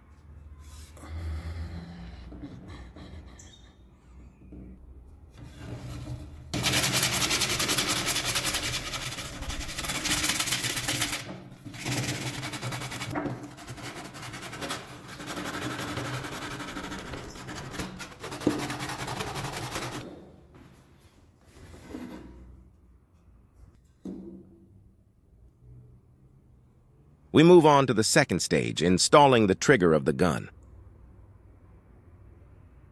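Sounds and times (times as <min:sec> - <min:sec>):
wood sanding with abrasive disc: 0:06.6 - 0:20.0.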